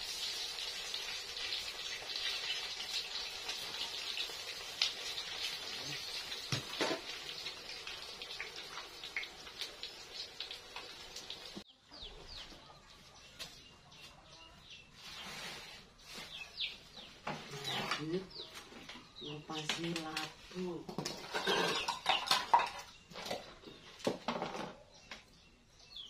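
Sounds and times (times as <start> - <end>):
food sizzling in hot oil: 0.0 - 11.7
birds chirping: 5.7 - 26.0.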